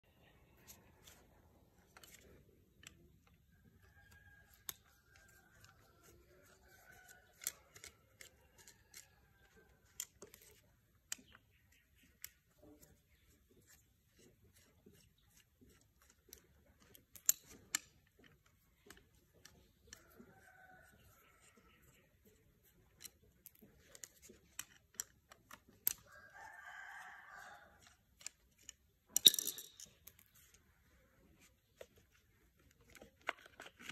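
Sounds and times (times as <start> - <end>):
tools clicking and knocking: 4.4 - 26.1, 27.7 - 30.6.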